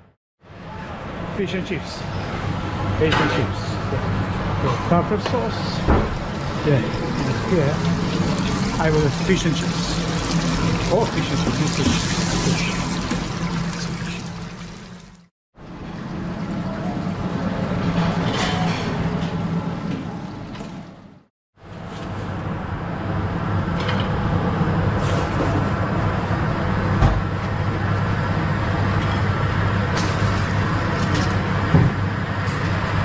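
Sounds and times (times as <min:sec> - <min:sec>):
kitchen extraction drone: 0:00.9 - 0:20.5.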